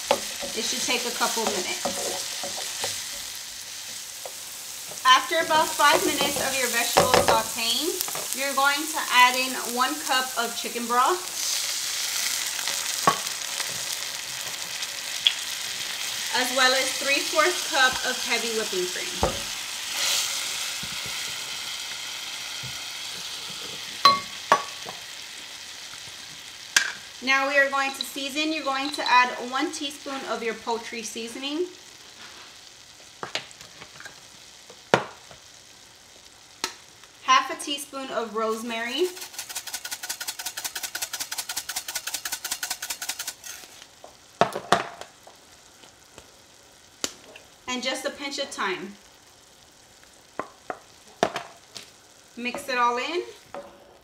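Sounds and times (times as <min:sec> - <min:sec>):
utensil scraping a pan: 0:00.0 - 0:03.4, 0:39.0 - 0:43.8
vegetables sizzling in a pan: 0:00.0 - 0:54.0.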